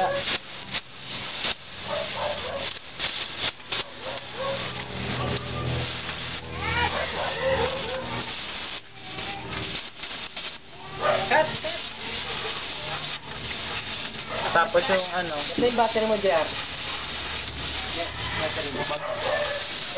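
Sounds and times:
crackles and sputtering pops: 0:00.0 - 0:19.9
welding torch hissing: 0:00.0 - 0:19.9.

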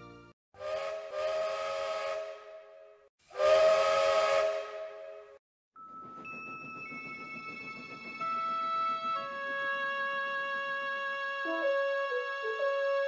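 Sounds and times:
steam locomotive whistle: 0:00.6 - 0:05.4, 0:09.2 - 0:13.0.

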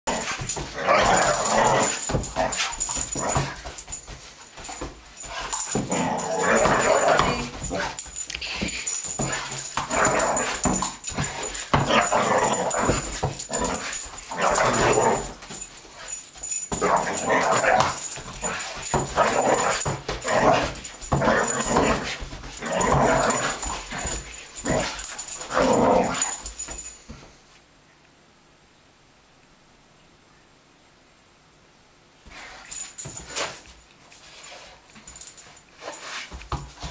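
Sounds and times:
dog barking and yipping: 0:00.1 - 0:08.2, 0:08.9 - 0:26.5.

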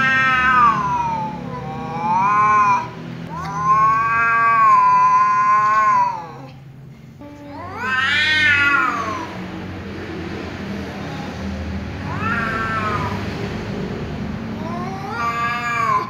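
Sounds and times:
cat yowling: 0:00.0 - 0:06.6, 0:07.3 - 0:09.4, 0:12.0 - 0:13.2, 0:14.6 - 0:16.0.

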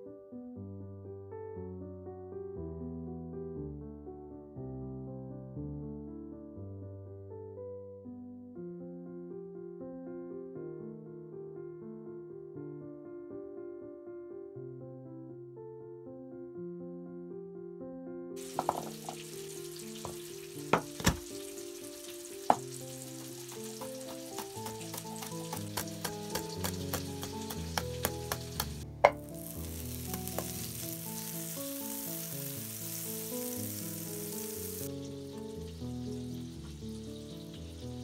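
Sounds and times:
soft piano music: 0:00.0 - 0:38.0
steady hiss: 0:18.4 - 0:23.9, 0:29.2 - 0:36.7
knife chopping on cutting board: 0:18.6 - 0:19.2, 0:20.0 - 0:21.3, 0:23.4 - 0:29.3
loud knock: 0:20.8 - 0:21.3.

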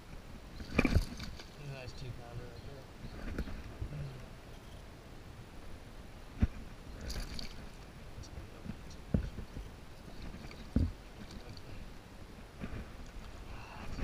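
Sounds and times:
water splashing and sloshing: 0:00.0 - 0:02.1, 0:05.7 - 0:14.0.

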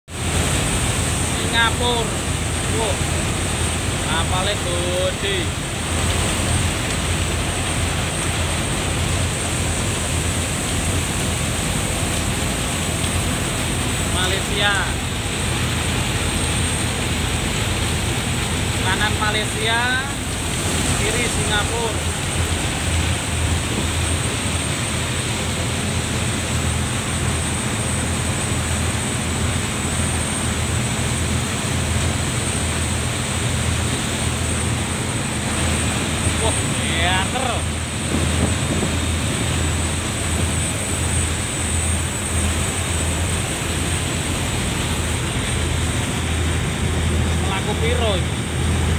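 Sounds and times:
churning wake water: 0:00.0 - 0:48.9
ferry engines droning: 0:00.2 - 0:48.9
wind on microphone: 0:38.0 - 0:39.3.

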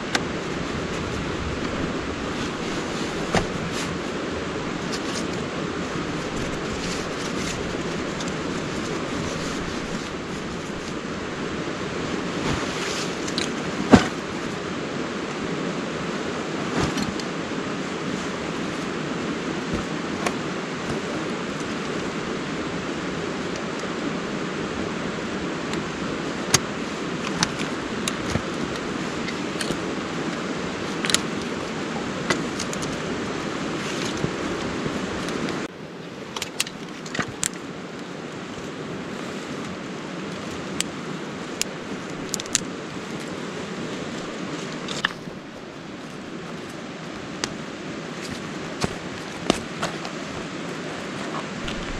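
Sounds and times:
stream rushing over rocks: 0:00.0 - 0:51.9
stones shifting underfoot: 0:48.2 - 0:51.9.

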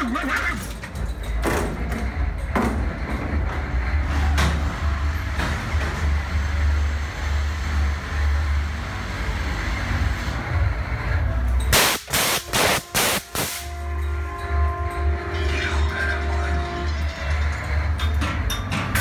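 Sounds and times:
short loud hissing blasts: 0:11.7 - 0:13.8.

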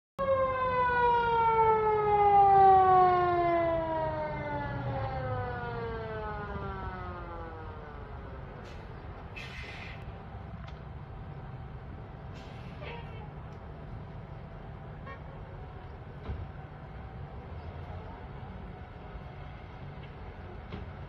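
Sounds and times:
fire engine siren winding down: 0:00.2 - 0:10.0
short hiss: 0:08.7 - 0:10.1, 0:12.3 - 0:12.9.

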